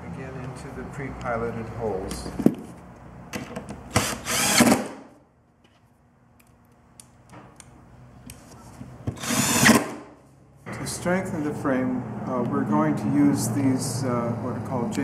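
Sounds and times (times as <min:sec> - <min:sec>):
drill driving screws into wood: 0:03.9 - 0:05.0, 0:09.1 - 0:10.0.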